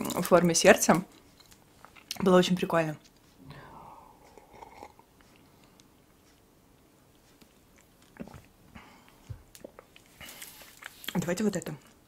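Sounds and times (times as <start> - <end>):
quiet swallowing: 3.4 - 5.6
slurping sip: 3.5 - 5.1.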